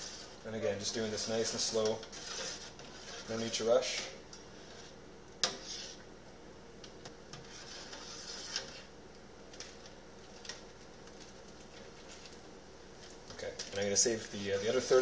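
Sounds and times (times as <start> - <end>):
spoon stirring in metal pot: 0.0 - 6.1, 6.8 - 8.9.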